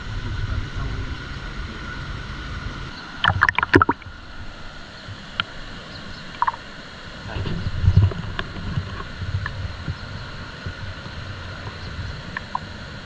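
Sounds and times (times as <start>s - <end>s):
stream water splashing: 2.9s - 13.0s.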